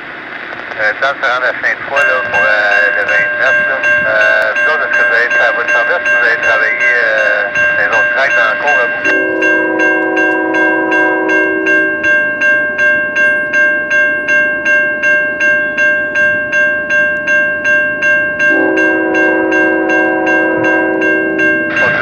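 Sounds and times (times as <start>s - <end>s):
crossing warning bell ringing: 0.0s - 22.0s
locomotive air horn: 8.3s - 11.9s, 18.5s - 22.0s.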